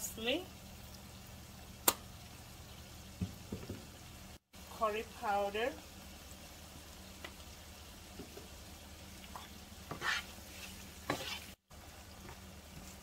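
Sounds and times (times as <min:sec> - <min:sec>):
vegetables sizzling in frying pan: 0:00.0 - 0:13.0
plastic spoon scraping pan: 0:09.9 - 0:11.6.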